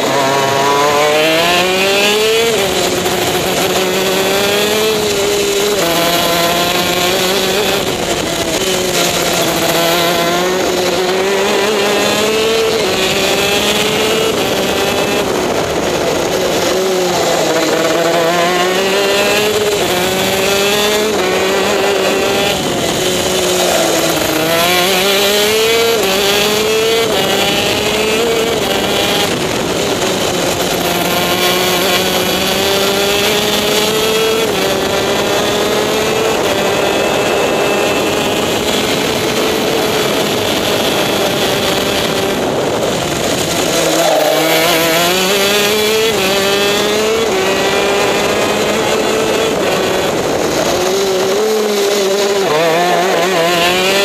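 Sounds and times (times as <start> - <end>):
two-stroke kart engine revving: 0.0 - 54.0.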